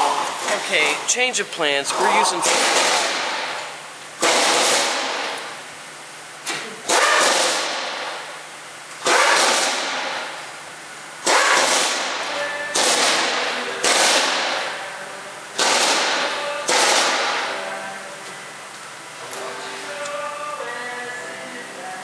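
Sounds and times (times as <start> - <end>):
sudden loud bursts of noise: 1.6 - 5.5, 6.9 - 8.2, 9.0 - 10.4, 11.2 - 14.8.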